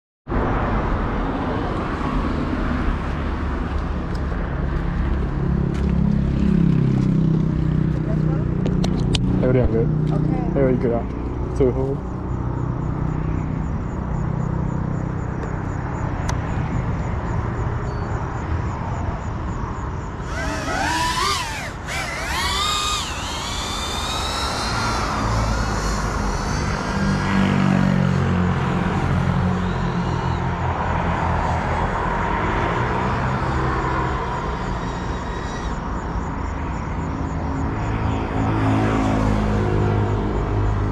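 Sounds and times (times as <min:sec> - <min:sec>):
drone propellers whining: 0:20.1 - 0:36.4.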